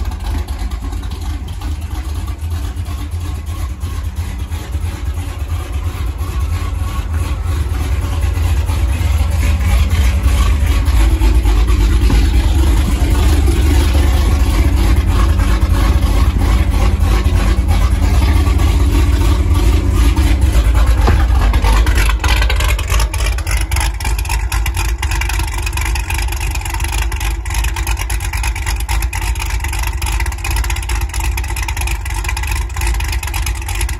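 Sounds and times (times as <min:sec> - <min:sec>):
car engine idling: 0:00.0 - 0:33.9.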